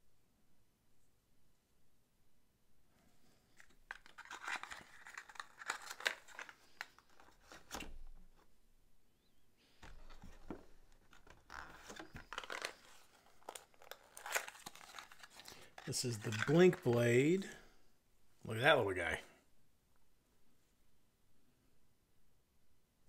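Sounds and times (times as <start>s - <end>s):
packaging crinkling and tearing: 3.6s - 8.0s, 9.8s - 17.4s.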